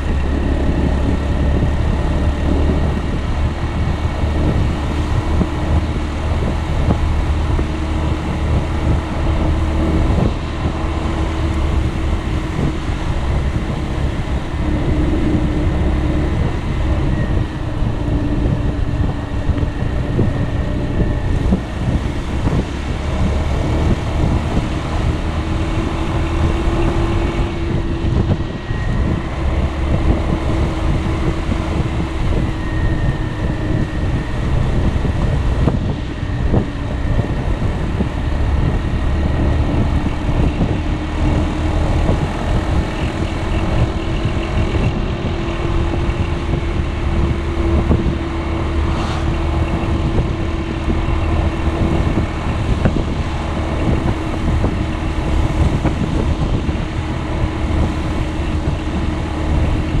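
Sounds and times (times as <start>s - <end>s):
wind on microphone: 0.0s - 60.0s.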